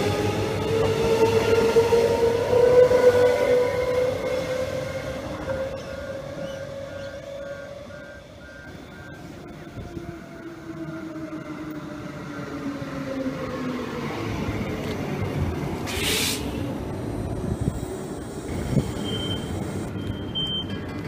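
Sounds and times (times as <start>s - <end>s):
train traction motors whining: 0.0s - 12.7s, 13.3s - 21.0s
regular beeping: 18.2s - 20.8s.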